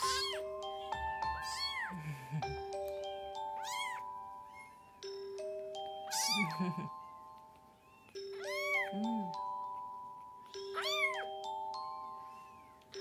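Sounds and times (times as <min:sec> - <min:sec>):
kitten mewing: 0:00.0 - 0:00.4, 0:06.1 - 0:06.6
background music: 0:00.0 - 0:13.0.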